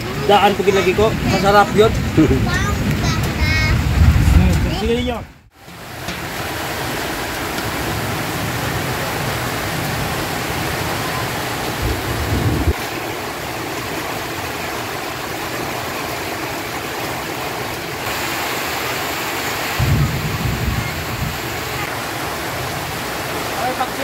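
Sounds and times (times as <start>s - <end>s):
broth boiling hiss: 18.0s - 22.0s.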